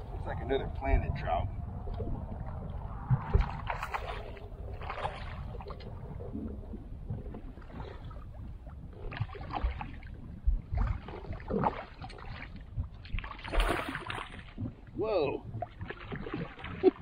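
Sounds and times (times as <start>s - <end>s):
water around kayak: 0.0s - 17.0s
wind: 0.0s - 17.0s
fish splashing: 9.0s - 14.8s.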